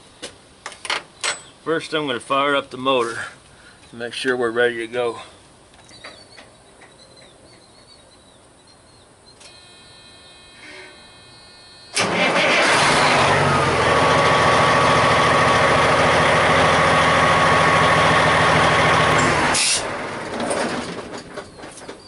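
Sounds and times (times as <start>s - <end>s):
engine whine: 9.4s - 21.9s
truck engine starting and running: 11.8s - 22.0s.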